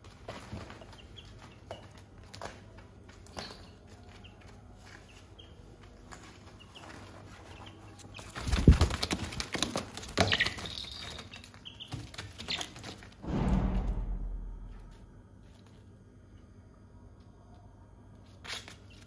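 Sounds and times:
chicks chirping: 0.3s - 2.5s, 3.1s - 13.1s
chickens flapping wings: 6.3s - 13.2s.

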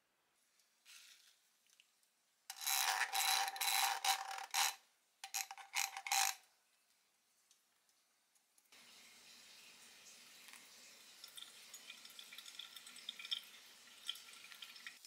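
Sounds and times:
glass scraping on ceramic rim: 2.5s - 6.4s.

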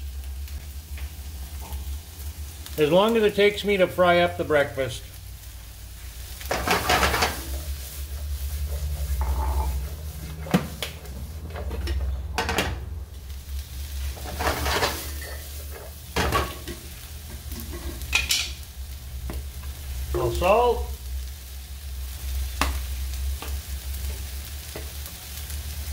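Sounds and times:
food sizzling in a frying pan: 0.0s - 25.9s
pan clattering and scraping: 6.5s - 13.0s, 14.1s - 18.6s.

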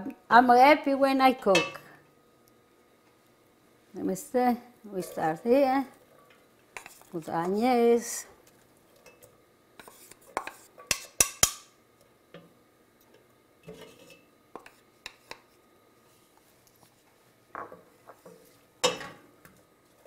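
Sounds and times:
spatula scraping frying pan: 4.9s - 7.6s, 9.8s - 11.2s, 13.6s - 15.6s.

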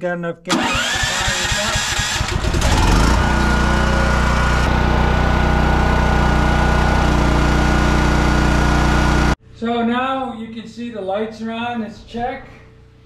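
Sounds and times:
generator engine starting and running: 0.5s - 9.4s.

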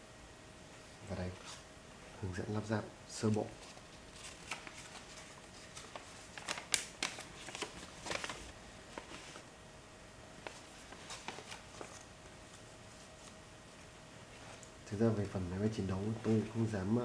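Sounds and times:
faint steady hum: 0.0s - 17.0s
paper rustling and crinkling: 3.2s - 9.5s, 10.4s - 13.4s.

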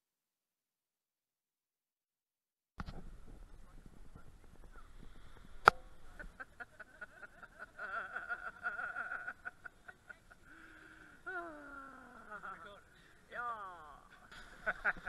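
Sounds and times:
people chattering: 3.6s - 15.0s
people laughing: 6.1s - 13.2s, 14.1s - 15.0s.

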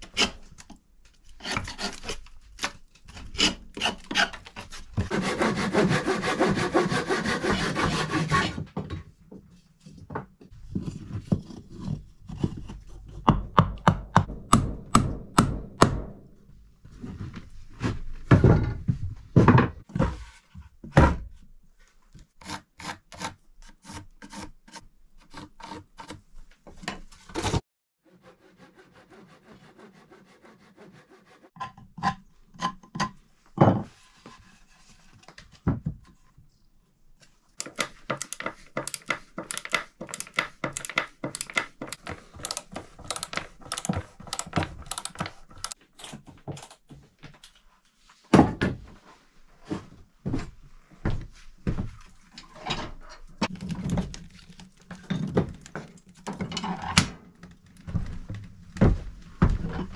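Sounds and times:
handsaw cutting wood: 5.0s - 8.6s, 28.1s - 31.5s.

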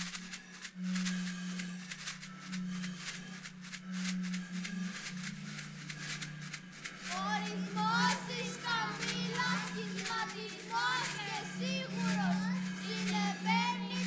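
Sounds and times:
steady low drone: 0.0s - 14.0s
children singing: 7.1s - 14.0s.

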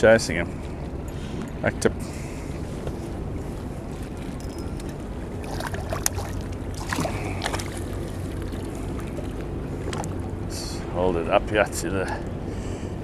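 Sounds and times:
steady low hum: 0.0s - 13.0s
fish splashing at surface: 5.4s - 9.4s.

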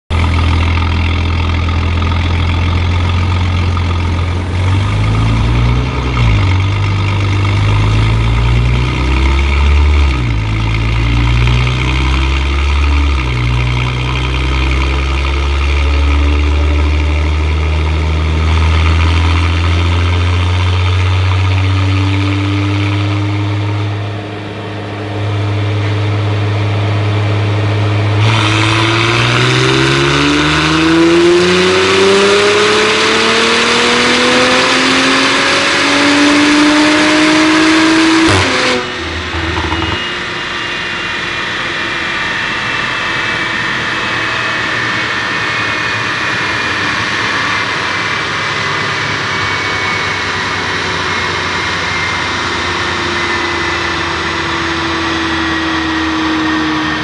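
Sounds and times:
car engine revving on dyno: 0.1s - 57.0s.

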